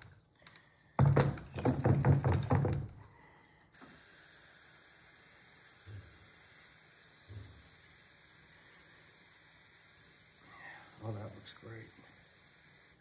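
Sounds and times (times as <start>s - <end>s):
hand pump knocking strokes: 1.0s - 2.9s
water spray hissing: 3.7s - 13.0s.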